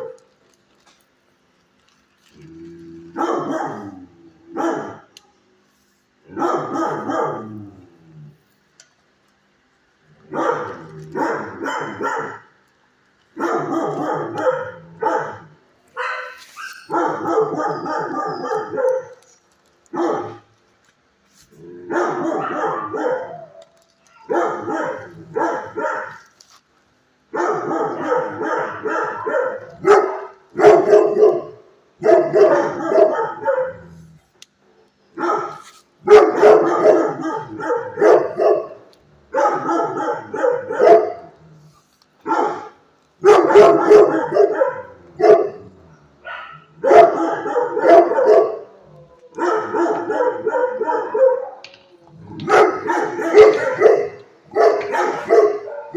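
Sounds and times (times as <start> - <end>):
dogs barking: 0.0 - 0.4, 3.1 - 5.2, 6.3 - 7.8, 10.1 - 12.6, 13.3 - 20.6, 21.8 - 26.3, 27.3 - 34.0, 35.2 - 41.4, 42.2 - 55.9.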